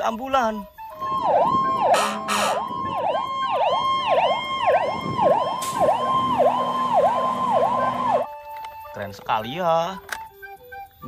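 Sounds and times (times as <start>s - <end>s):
ambulance siren yelping: 0.6s - 8.5s.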